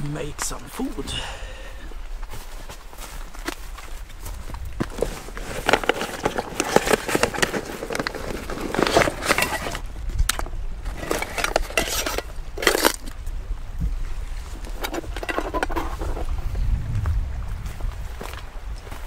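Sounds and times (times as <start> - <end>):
camping gear rustling and clicking: 2.0 - 16.5.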